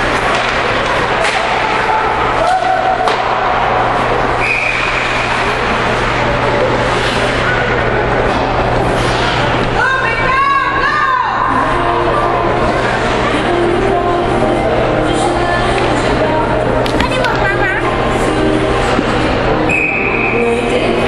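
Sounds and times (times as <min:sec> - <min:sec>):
crowd noise: 0:00.0 - 0:21.0
people shouting: 0:01.2 - 0:03.7
high whistle blast: 0:04.4 - 0:05.1, 0:19.7 - 0:20.3.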